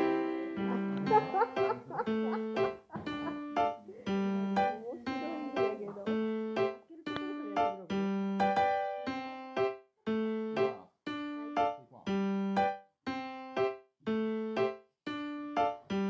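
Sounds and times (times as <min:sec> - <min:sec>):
light keyboard tune: 0:00.0 - 0:16.0.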